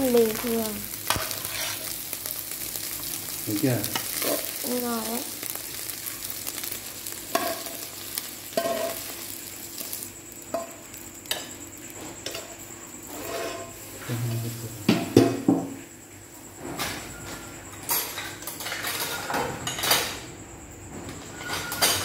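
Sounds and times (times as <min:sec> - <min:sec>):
faint sizzle: 0:00.0 - 0:22.0
spatula scraping and knocking pan: 0:01.1 - 0:02.0, 0:08.5 - 0:09.0, 0:12.2 - 0:13.8.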